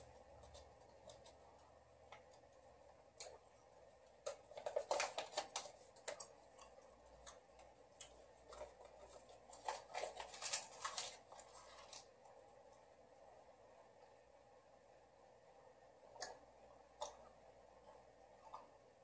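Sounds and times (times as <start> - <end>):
photo paper crinkling: 4.2 - 12.4.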